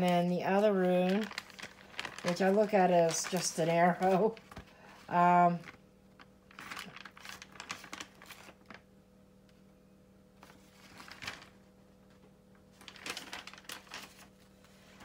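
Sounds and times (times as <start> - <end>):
faint electrical hum: 0.0 - 15.0.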